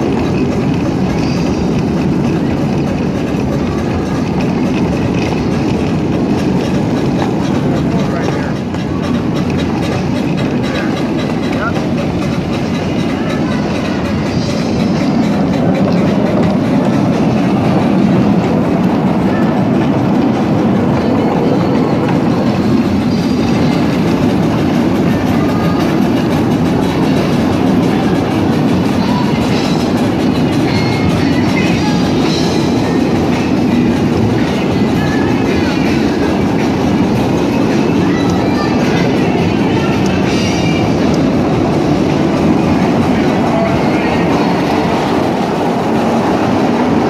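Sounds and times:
miniature train rumbling on track: 0.0 - 47.0
wheel clatter over rail joints: 0.0 - 47.0.

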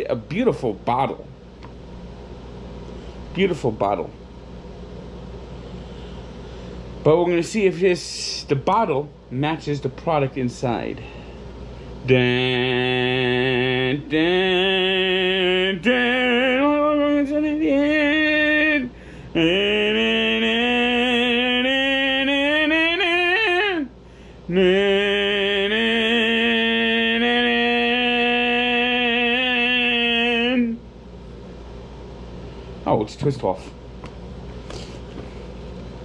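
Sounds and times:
man singing wordless tune: 12.0 - 30.8.

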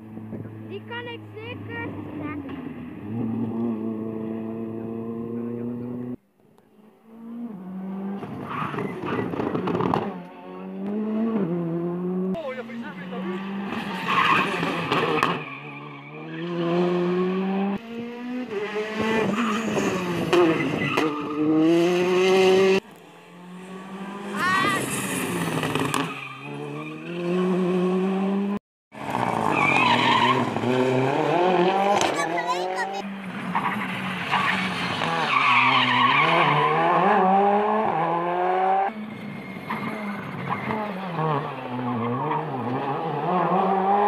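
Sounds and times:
rally car engines accelerating: 0.0 - 6.2, 6.9 - 44.0.

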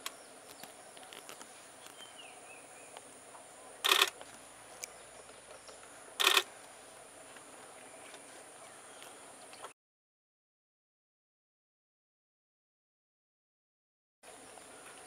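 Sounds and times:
rapid camera shutter clicks: 3.8 - 4.2, 6.2 - 6.5.

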